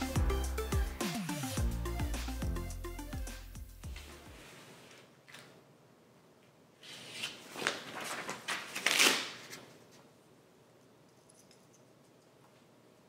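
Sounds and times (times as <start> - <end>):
decal sheet rustling and crinkling: 3.9 - 5.6, 6.8 - 10.2.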